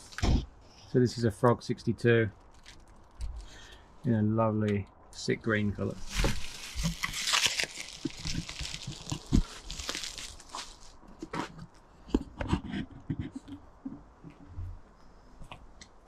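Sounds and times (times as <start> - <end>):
cardboard rustling and scraping: 5.8 - 13.5.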